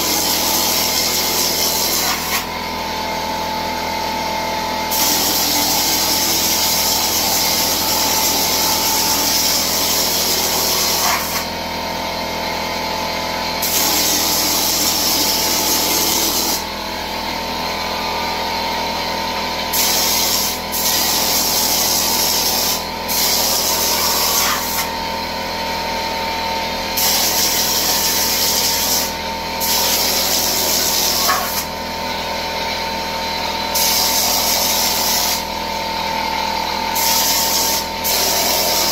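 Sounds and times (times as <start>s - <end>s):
air compressor humming: 0.0s - 38.9s.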